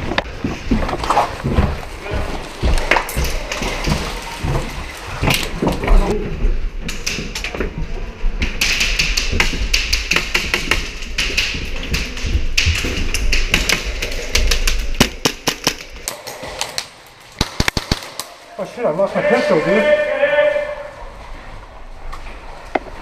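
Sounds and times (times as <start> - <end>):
quick footsteps on tiled floor: 0.0 - 15.2.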